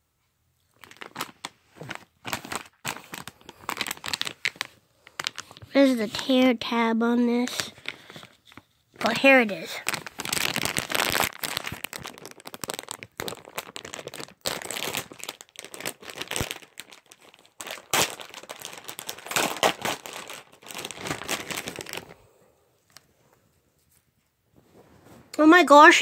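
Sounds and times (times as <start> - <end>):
plastic wrapper crackling and tearing: 0.7 - 6.5, 7.4 - 22.2.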